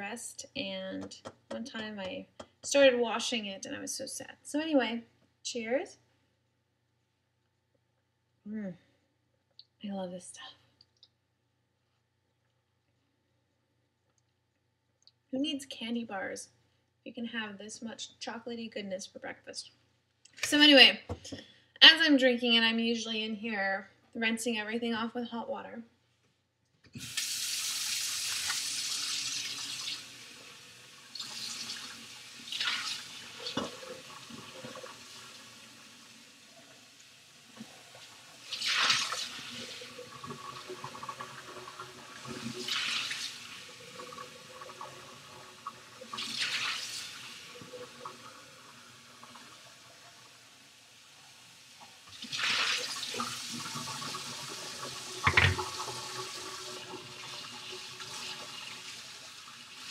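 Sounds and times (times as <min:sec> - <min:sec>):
tap running into sink: 0:55.1 - 0:56.0.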